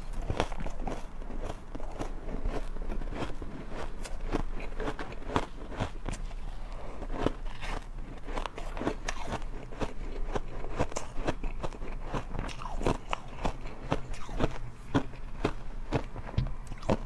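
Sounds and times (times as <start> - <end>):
chewing crunchy ice: 0.0 - 17.0.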